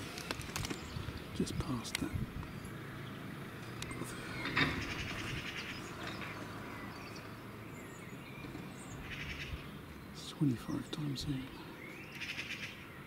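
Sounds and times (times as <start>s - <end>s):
rapid bird trill: 3.9s - 11.0s, 11.7s - 13.0s.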